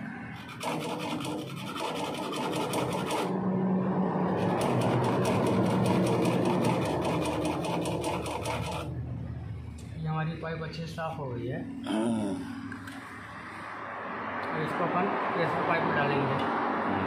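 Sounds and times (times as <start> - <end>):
sandpaper rasping on metal pipe: 0.4 - 3.3
steady low hum: 3.2 - 14.3.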